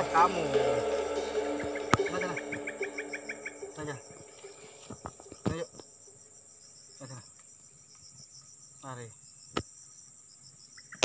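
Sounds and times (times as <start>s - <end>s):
short falling-pitch sounds: 0.0s - 5.4s
insects buzzing: 0.0s - 11.0s.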